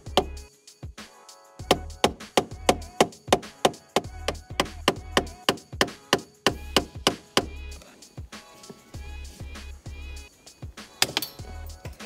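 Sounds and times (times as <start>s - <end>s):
background music with percussive beat: 0.0s - 12.0s
pulsing bass: 4.1s - 5.4s, 6.5s - 7.8s, 9.0s - 10.3s.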